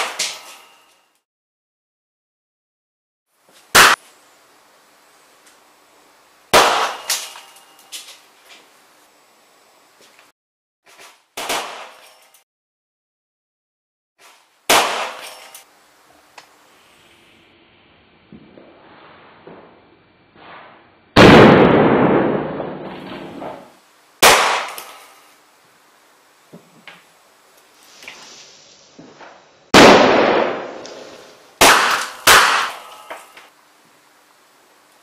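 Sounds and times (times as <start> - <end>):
explosive charges banging: 20.4 - 24.8, 29.8 - 32.9.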